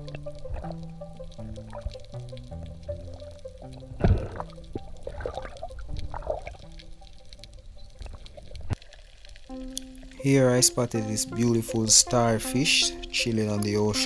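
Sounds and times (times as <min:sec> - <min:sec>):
underwater gurgling and bubbling: 0:00.0 - 0:09.2
background music with held notes: 0:00.0 - 0:14.0.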